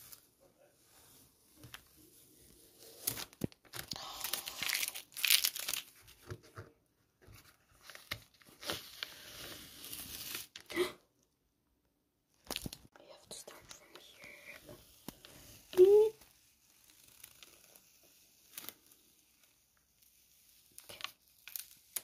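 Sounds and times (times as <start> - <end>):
masking tape peeled off paper: 2.1 - 6.0, 8.0 - 10.6, 14.8 - 22.0.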